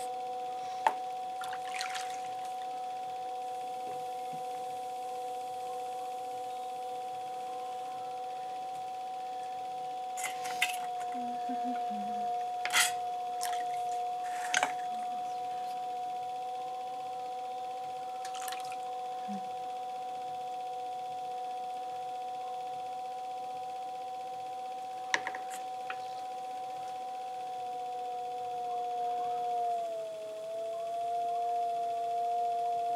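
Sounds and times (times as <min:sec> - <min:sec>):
potter's wheel motor whining: 0:00.0 - 0:32.9.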